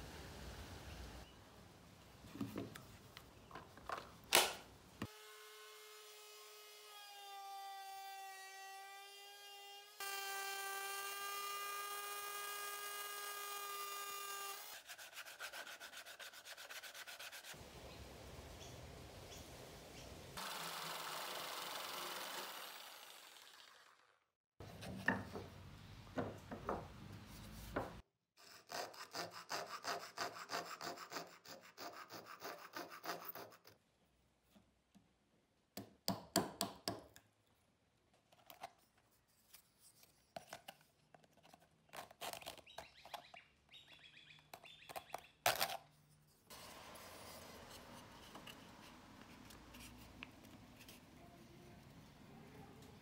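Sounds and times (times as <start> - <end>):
saw cutting wood: 5.1 - 17.6, 20.4 - 24.1, 28.4 - 33.8, 46.5 - 50.1.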